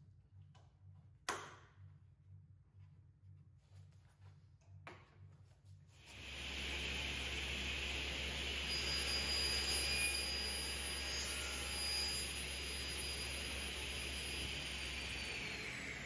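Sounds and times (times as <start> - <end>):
panel saw running: 6.1 - 16.0.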